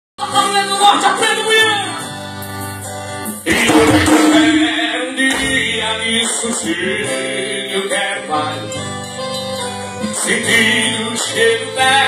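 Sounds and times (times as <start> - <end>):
song with singing through car speakers: 3.4 - 9.0, 10.0 - 12.0.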